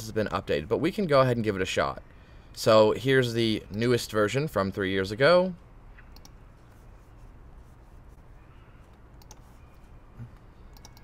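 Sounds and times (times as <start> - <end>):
computer mouse clicks: 6.0 - 6.4, 8.8 - 11.0.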